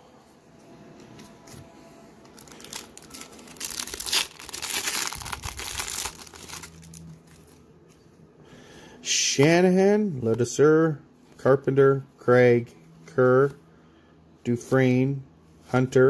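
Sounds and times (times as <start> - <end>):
foil wrapper tearing and crinkling: 2.3 - 7.5.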